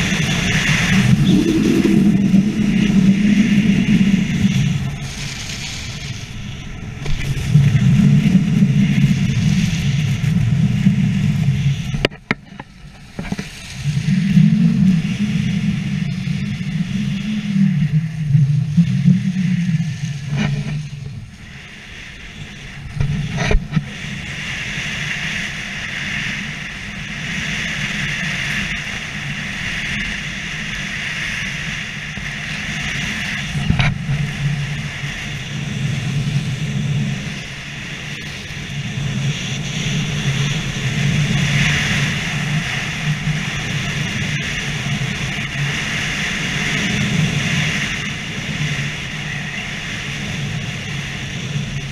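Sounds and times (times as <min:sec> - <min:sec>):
skis scraping on snow: 0:00.0 - 0:12.0
wind rumble on microphone: 0:00.0 - 0:51.9.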